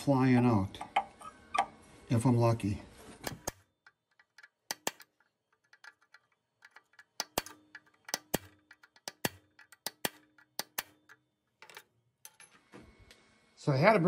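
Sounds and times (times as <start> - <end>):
hammer tapping metal pin punch: 3.3 - 12.5.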